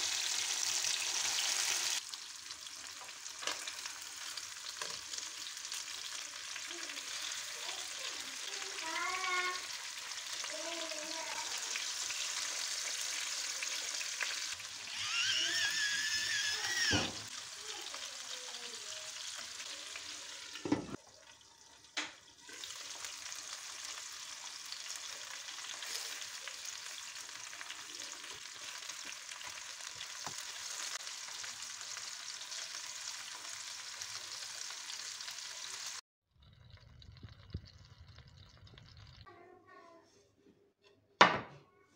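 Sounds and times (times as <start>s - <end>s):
fish sizzling in a pan: 0.0s - 39.3s
knock: 41.2s - 41.6s.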